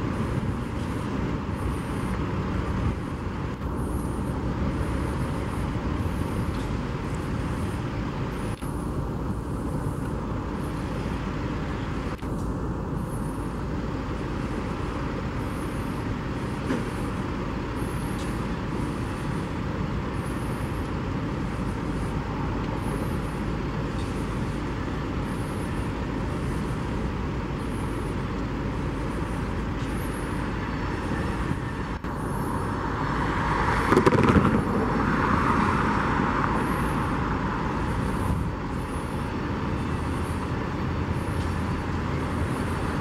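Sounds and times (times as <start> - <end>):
outdoor vehicle noise: 0.0 - 43.0
louder passing vehicle: 32.4 - 40.4.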